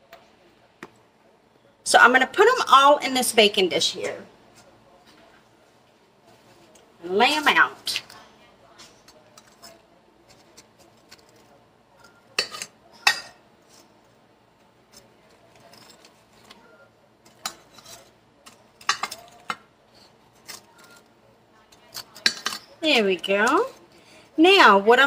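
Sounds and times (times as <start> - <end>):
tongs clinking against glass dish: 12.0 - 13.4, 17.2 - 19.6, 21.7 - 22.8.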